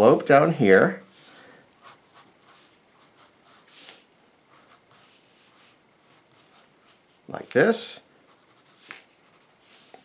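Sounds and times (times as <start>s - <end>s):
pencil sketching on paper: 4.5s - 7.0s, 8.3s - 10.0s.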